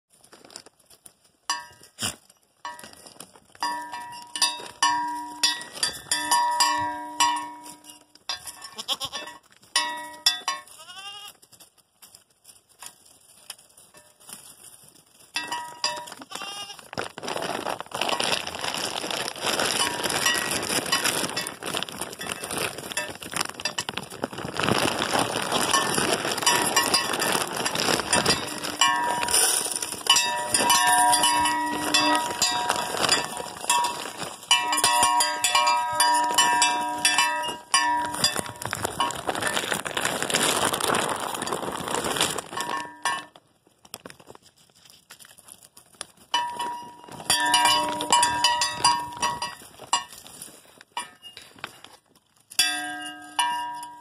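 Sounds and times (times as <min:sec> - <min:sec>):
rustling and scraping: 0:00.1 - 0:54.0
goat bell clanking: 0:01.5 - 0:02.0, 0:02.6 - 0:11.3, 0:15.3 - 0:16.7, 0:19.8 - 0:23.9, 0:25.6 - 0:39.6, 0:42.6 - 0:43.4, 0:46.3 - 0:50.3, 0:51.0 - 0:51.6, 0:52.4 - 0:54.0
goat bleat: 0:08.6 - 0:09.4, 0:10.8 - 0:11.4, 0:16.2 - 0:16.9.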